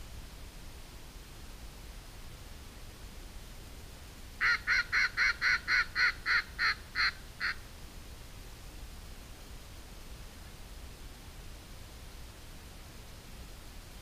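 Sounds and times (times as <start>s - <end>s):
duck quacking: 4.4s - 7.6s.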